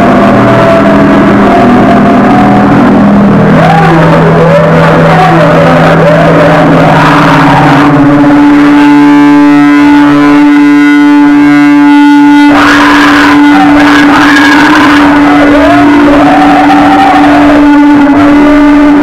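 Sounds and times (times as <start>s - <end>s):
buzzy tone: 0.0s - 19.0s
distorted electric guitar noise: 0.0s - 19.0s
high feedback tones: 0.0s - 19.0s
steady drone: 0.0s - 19.0s.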